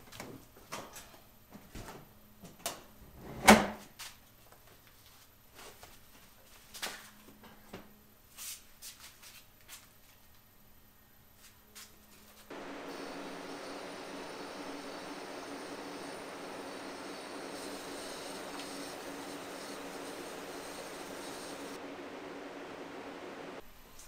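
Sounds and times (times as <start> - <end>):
metal oven door opening: 3.2 - 3.8.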